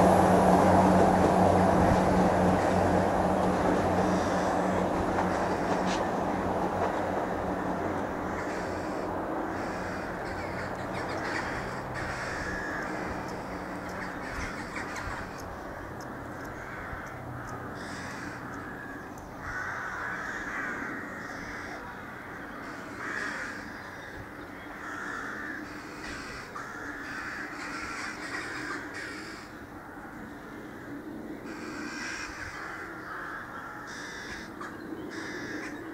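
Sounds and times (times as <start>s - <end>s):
train engine humming: 0.0s - 24.8s
crows cawing: 4.0s - 5.6s, 7.2s - 35.8s.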